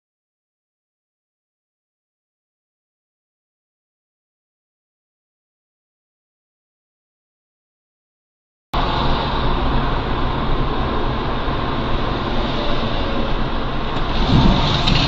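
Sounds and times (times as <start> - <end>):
car road and engine noise: 8.8 - 15.0.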